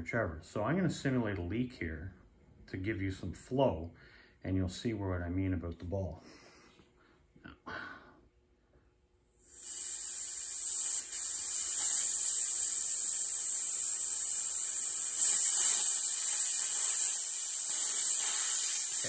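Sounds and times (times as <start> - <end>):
compressed air hissing: 9.4 - 19.0.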